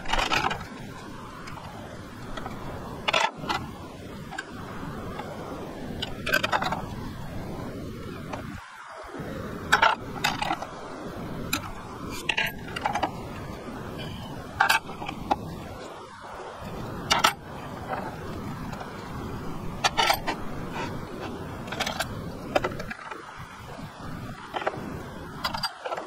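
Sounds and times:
background hiss: 0:00.0 - 0:26.0.

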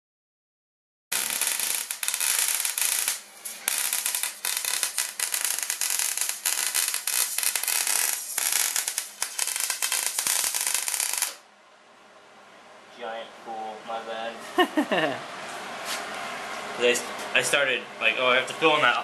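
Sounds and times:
welding arc crackling: 0:01.1 - 0:11.4.

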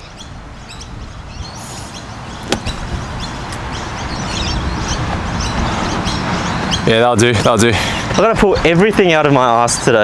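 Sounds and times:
golf club striking sand: 0:01.8 - 0:02.9.

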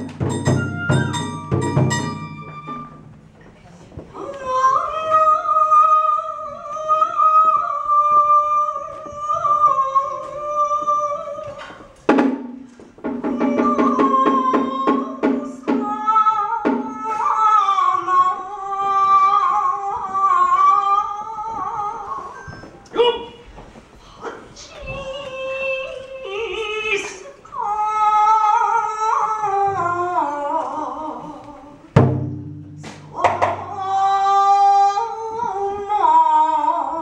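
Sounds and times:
plucked string notes: 0:00.0 - 0:03.4.

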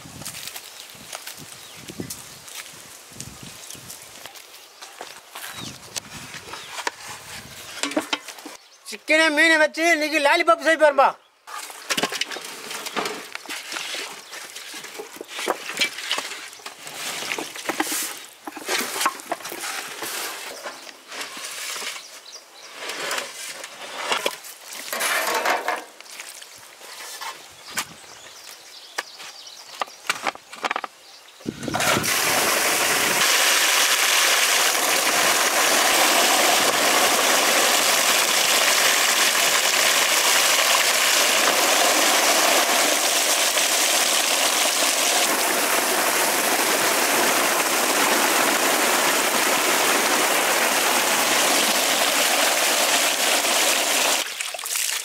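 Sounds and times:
water gushing into tank: 0:31.6 - 0:55.0.

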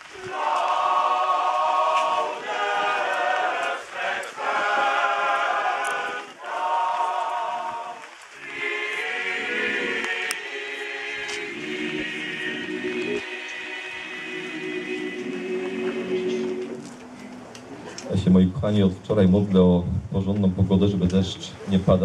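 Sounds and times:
choir singing a hymn: 0:00.0 - 0:17.1.

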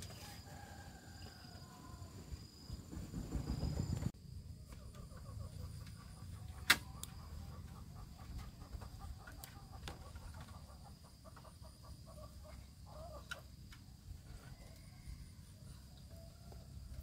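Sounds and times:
chickens clucking softly: 0:04.6 - 0:16.9.

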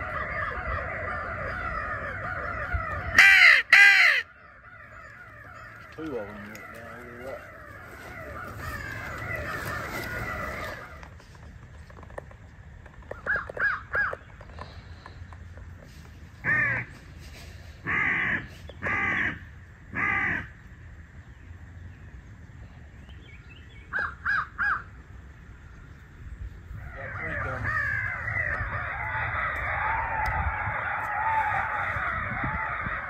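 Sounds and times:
crow cawing: 0:00.0 - 0:11.1, 0:13.2 - 0:14.2, 0:16.4 - 0:17.1, 0:17.7 - 0:20.6, 0:23.9 - 0:25.0, 0:26.8 - 0:33.0.

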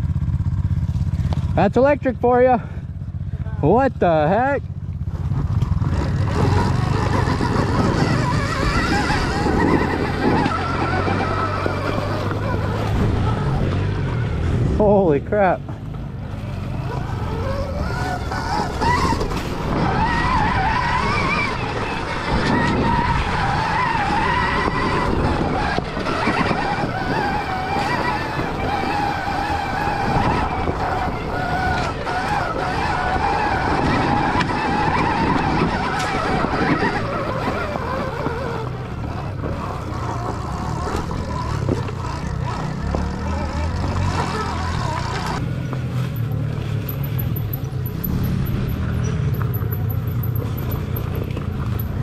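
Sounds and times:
tyres rumbling on rocky trail: 0:00.0 - 0:52.0
wind on microphone: 0:05.8 - 0:14.8, 0:17.2 - 0:42.2.

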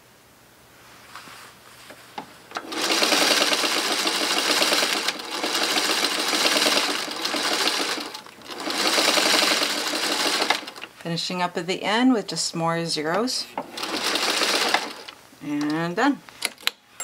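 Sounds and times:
sewing machine stitching: 0:02.5 - 0:10.9, 0:13.6 - 0:15.2.

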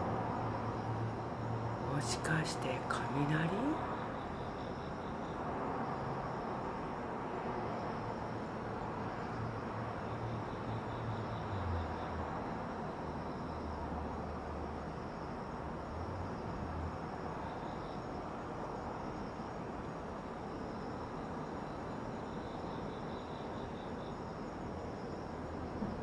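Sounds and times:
crickets chirping: 0:00.0 - 0:26.0
distant town noise hiss: 0:00.0 - 0:26.0.

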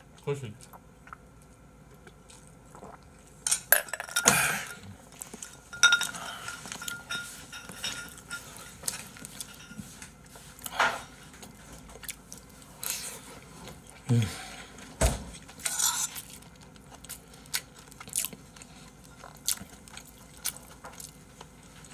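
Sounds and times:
spoons clinking against bowls: 0:03.7 - 0:04.8, 0:05.4 - 0:08.7.

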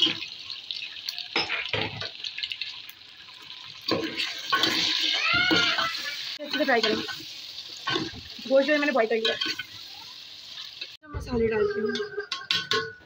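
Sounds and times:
meat sizzling in oil: 0:00.0 - 0:11.0
metal ladle clattering: 0:12.0 - 0:13.0.

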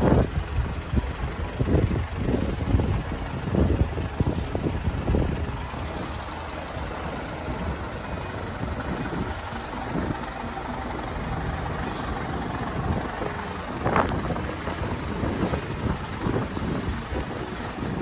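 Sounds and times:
truck engine rumble: 0:00.0 - 0:18.0
wind on microphone: 0:00.0 - 0:18.0
air hiss: 0:02.3 - 0:02.9, 0:11.8 - 0:12.4.

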